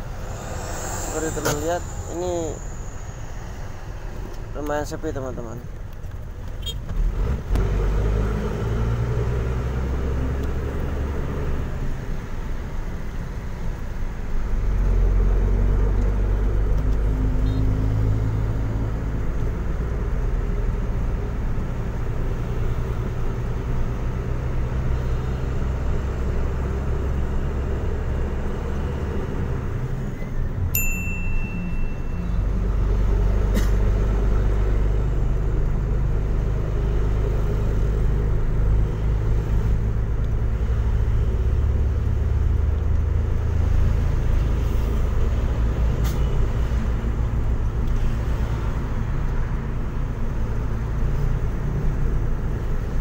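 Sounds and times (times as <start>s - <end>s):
truck engine rumbling: 0.0s - 53.0s
brief high beep: 30.8s - 32.4s.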